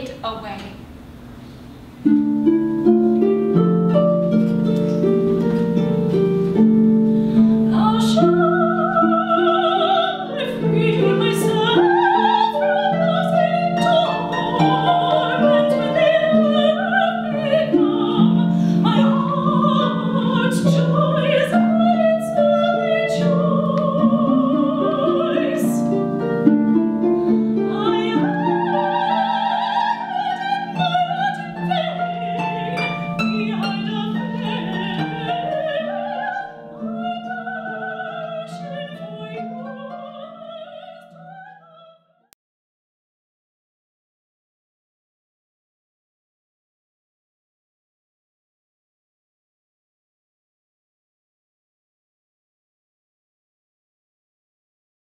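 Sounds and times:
harp playing: 2.0s - 41.8s
soprano singing with vibrato: 7.6s - 26.6s, 27.3s - 42.3s.

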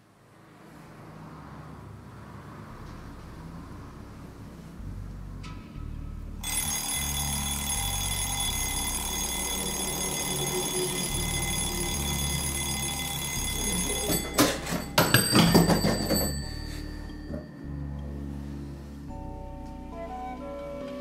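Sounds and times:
alarm clock bells ringing: 6.4s - 18.0s.

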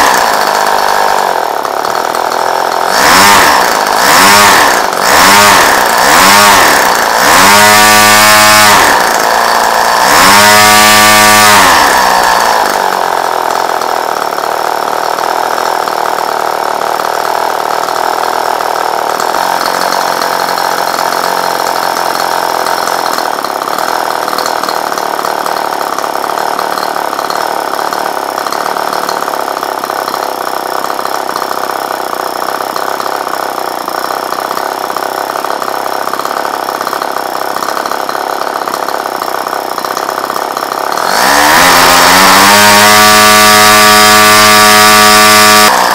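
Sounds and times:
model engine revving: 0.0s - 45.9s.

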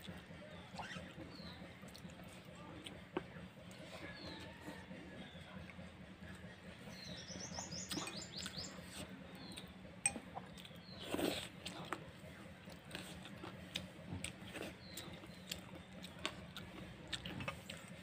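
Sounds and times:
eating rice by hand: 0.0s - 7.1s, 7.9s - 18.0s
small bird chirping: 6.9s - 9.7s.

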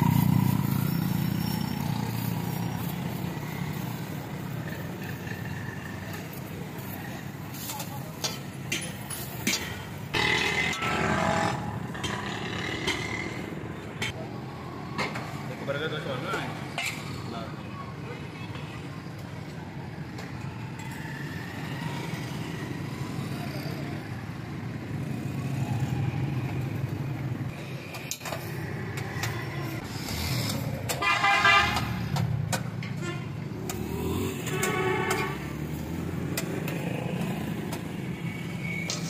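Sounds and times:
street traffic rumbling: 0.0s - 39.0s
vehicle horn: 31.0s - 31.9s, 33.0s - 33.4s, 34.4s - 35.5s.

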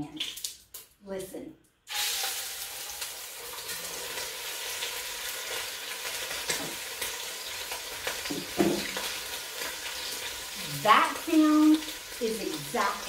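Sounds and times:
meat sizzling in a pan: 1.9s - 13.0s
knock: 8.3s - 8.9s.

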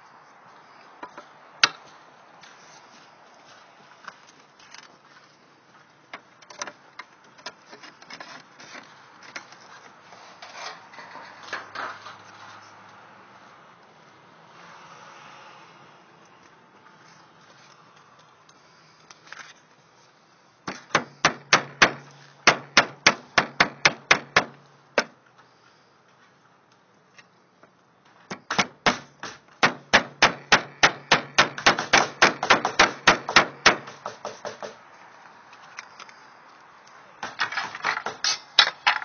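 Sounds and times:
hammer blows: 20.7s - 25.2s, 28.3s - 34.8s.

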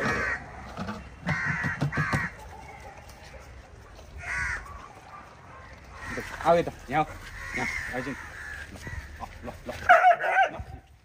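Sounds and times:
crow cawing: 0.0s - 0.5s, 1.2s - 2.4s, 4.2s - 10.0s.

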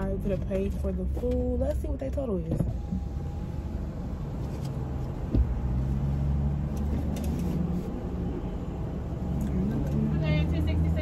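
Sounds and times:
car engine humming: 0.0s - 11.0s
thump: 5.3s - 5.6s.

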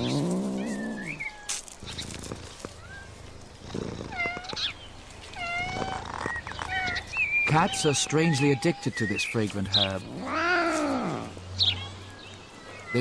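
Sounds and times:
cat meowing: 5.4s - 8.9s, 10.1s - 11.3s.

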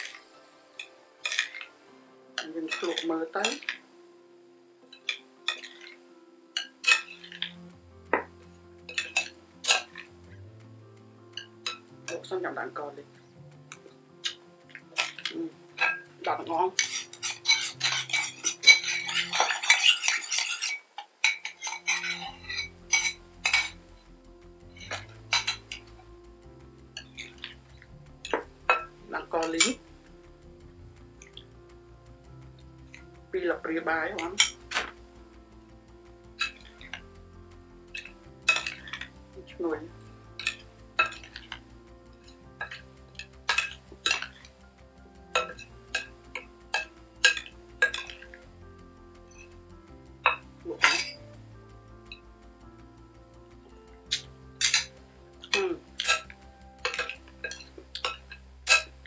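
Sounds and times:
quiet background music: 0.0s - 59.0s
spoon mixing in glass bowl: 2.4s - 3.7s, 15.0s - 23.8s, 54.2s - 58.9s
metal spoon clinking in ceramic bowl: 16.8s - 23.8s, 55.5s - 58.9s.

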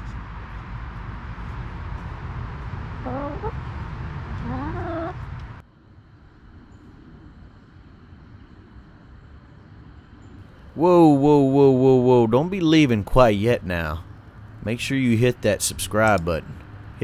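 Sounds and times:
outdoor background: 0.0s - 17.0s
hen calling: 3.0s - 3.6s, 4.4s - 5.2s.

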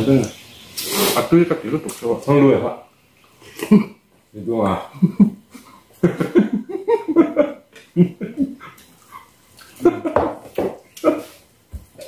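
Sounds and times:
men talking: 0.0s - 0.4s, 1.0s - 2.9s, 3.6s - 5.3s
men laughing: 3.5s - 4.0s, 4.8s - 10.4s, 11.0s - 11.4s.

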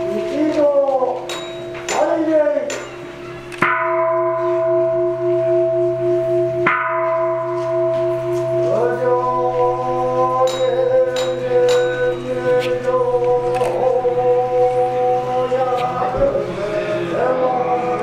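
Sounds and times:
temple bell ringing: 0.0s - 18.0s
voices chanting: 8.8s - 18.0s.

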